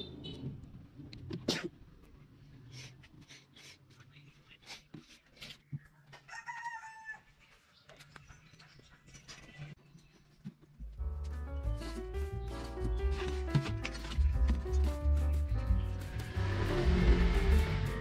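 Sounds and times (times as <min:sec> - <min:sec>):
rooster crowing: 0:06.3 - 0:07.3
plastic jugs clicking and knocking: 0:12.9 - 0:14.8.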